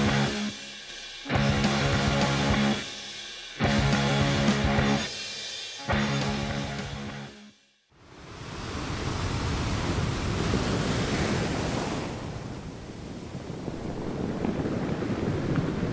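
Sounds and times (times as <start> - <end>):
ocean waves washing in: 8.0 - 15.9.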